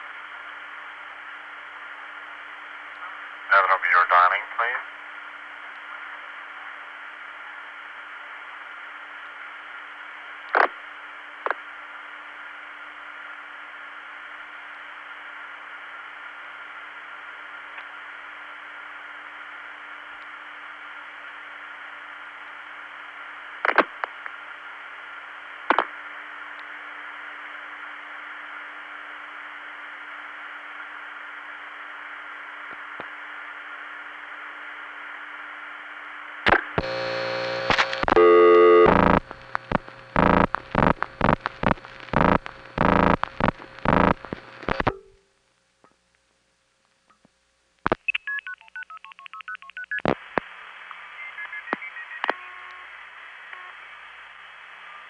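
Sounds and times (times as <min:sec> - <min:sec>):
loud telephone tones: 0:36.8 - 0:44.9
telephone line hiss: 0:36.8 - 0:45.1, 0:48.1 - 0:53.9
low hum: 0:36.8 - 0:45.4
telephone dialing tones: 0:38.0 - 0:43.2, 0:48.1 - 0:50.1.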